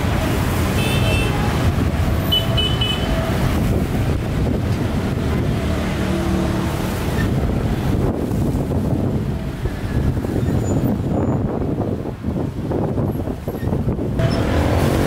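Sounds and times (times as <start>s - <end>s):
street traffic rumble: 0.0s - 15.0s
wind buffeting microphone: 1.3s - 15.0s.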